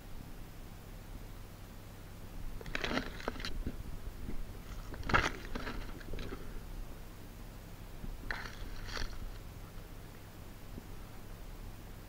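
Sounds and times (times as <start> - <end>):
handling noise: 2.5 - 6.6
rustling and crunching of grass: 2.6 - 6.6, 8.1 - 9.8.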